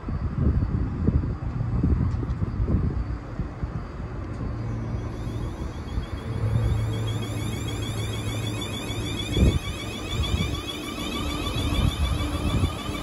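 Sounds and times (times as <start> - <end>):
low hum: 2.8 - 13.0
electric train motor whining: 4.2 - 13.0.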